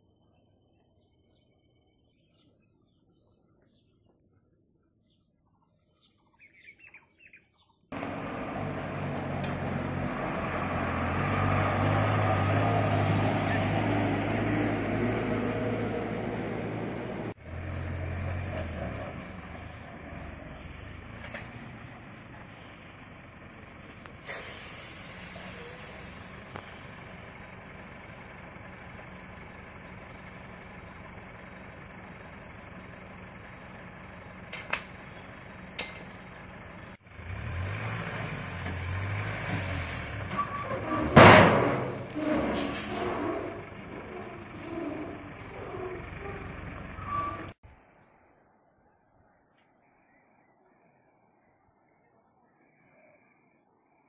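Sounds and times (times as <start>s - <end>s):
heavy diesel truck engine: 7.9s - 47.6s
faint bird chirps: 45.7s - 54.0s.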